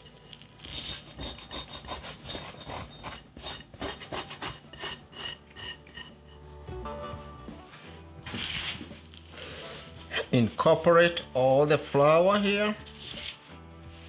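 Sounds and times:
dough scraped from glass bowl: 0.0s - 6.5s, 8.3s - 10.2s, 12.4s - 14.0s.

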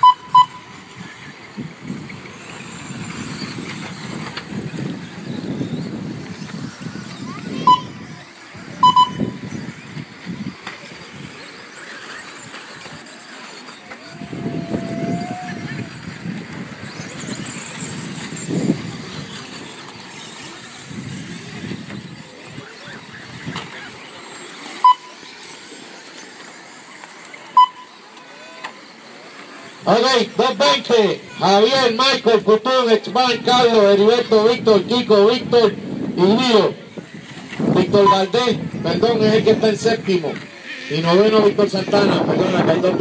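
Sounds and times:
short high electronic beeps: 0.0s - 0.8s, 7.6s - 8.0s, 8.8s - 9.4s, 24.8s - 25.3s, 27.6s - 28.0s
rc trucks whining: 0.0s - 43.0s.

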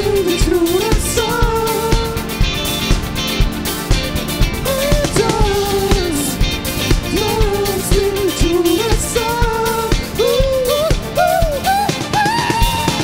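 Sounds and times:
person singing: 0.0s - 2.4s, 4.6s - 13.0s
live rock band playing: 0.0s - 13.0s.

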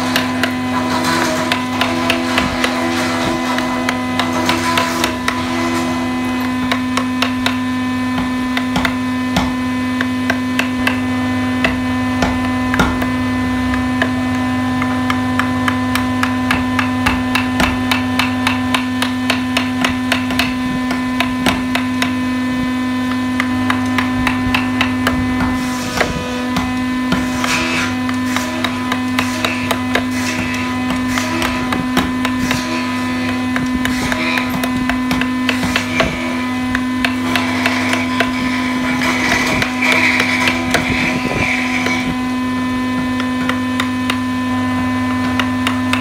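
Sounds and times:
steady hum: 0.0s - 46.0s
mallet tapping chisel into wood: 0.1s - 0.6s, 1.2s - 5.6s, 6.4s - 22.2s, 23.0s - 42.2s, 42.9s - 44.2s, 45.1s - 46.0s.

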